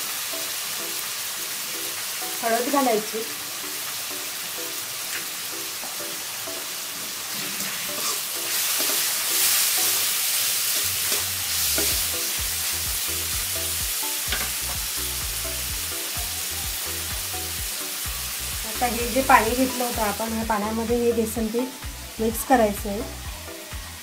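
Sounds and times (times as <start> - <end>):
vegetables sizzling in oil: 0.0 - 24.0
spatula scraping pan: 7.4 - 9.6.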